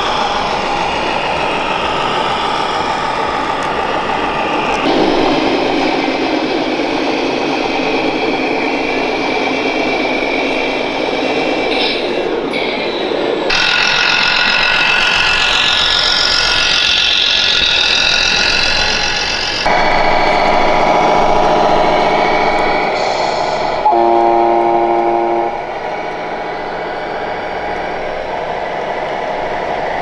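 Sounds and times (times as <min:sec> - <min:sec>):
truck engine running: 0:00.0 - 0:12.7, 0:13.4 - 0:28.4
hall noise: 0:00.0 - 0:30.0
multi-note air horn: 0:04.8 - 0:08.5, 0:23.8 - 0:25.7.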